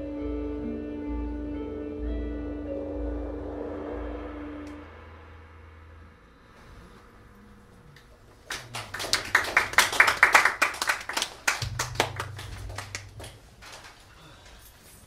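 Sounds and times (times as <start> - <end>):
audience clapping: 8.4 - 14.1.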